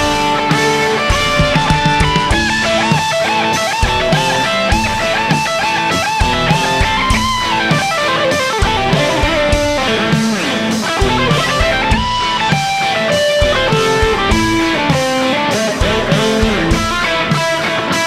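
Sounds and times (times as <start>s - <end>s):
drums: 0.0s - 18.0s
electric guitar lead with bends: 0.0s - 18.0s.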